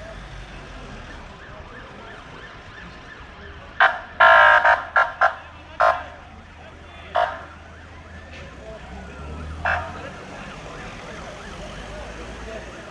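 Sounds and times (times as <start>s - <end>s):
low rumble of ambulances: 0.0s - 12.9s
ambulance siren short blasts: 3.8s - 6.1s, 9.3s - 12.9s.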